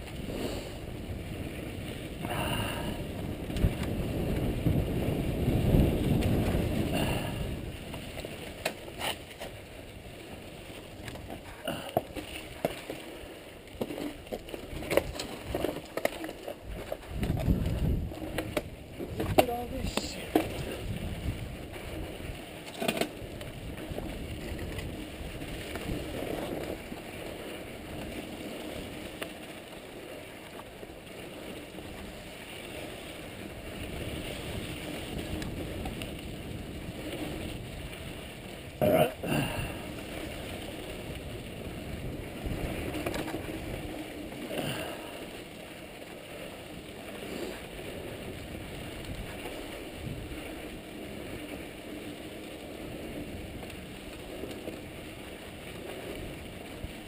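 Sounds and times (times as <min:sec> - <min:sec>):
wind on microphone: 0:00.0 - 0:10.1, 0:16.6 - 0:28.2, 0:33.2 - 0:45.3, 0:47.1 - 0:52.0
bike rattling: 0:00.0 - 0:57.0
tyres rumbling over dirt and rock: 0:00.0 - 0:57.0.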